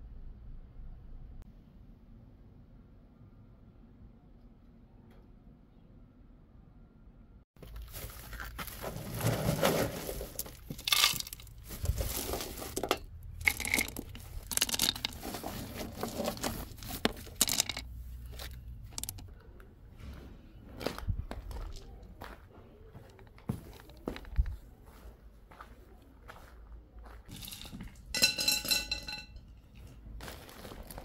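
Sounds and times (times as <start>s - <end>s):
plastic sack rustling and crinkling: 7.6s - 17.9s, 29.8s - 31.0s.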